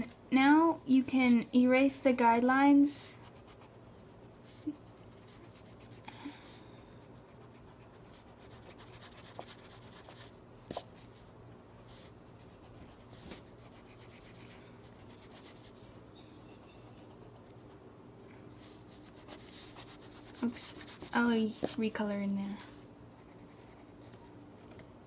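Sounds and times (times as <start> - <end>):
eraser rubbing on paper: 18.6 - 21.8.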